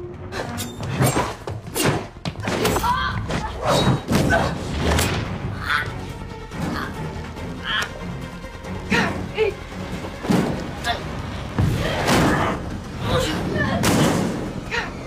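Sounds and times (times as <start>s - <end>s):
tense film score: 0.0s - 15.0s
fight thumps and bangs: 0.8s - 5.5s, 13.7s - 14.7s
bodies hitting metal walls: 13.8s - 14.6s.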